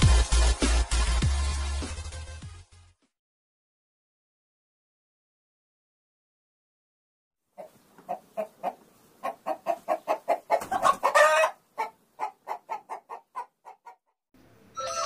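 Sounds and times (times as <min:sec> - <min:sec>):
music: 0:00.0 - 0:03.2, 0:14.8 - 0:15.0
hen clucking: 0:07.6 - 0:14.1.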